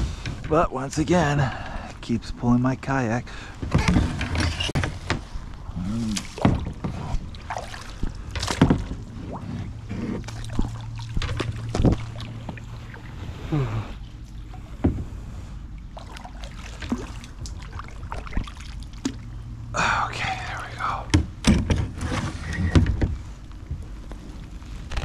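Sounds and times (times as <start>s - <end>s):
knocks and clatters on kayak: 3.6s - 5.3s, 6.3s - 12.6s, 21.1s - 25.0s.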